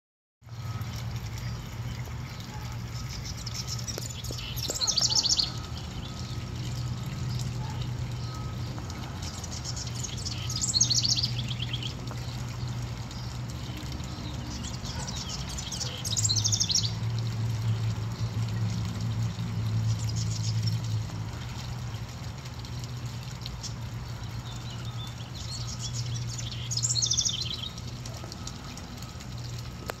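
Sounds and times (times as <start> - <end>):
wren singing trilled song: 8.2 - 12.0.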